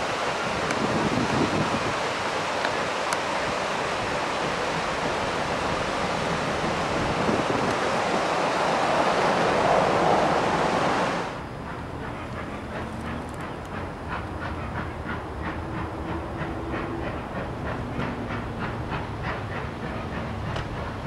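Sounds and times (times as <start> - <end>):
river rapids rushing: 0.0 - 11.4.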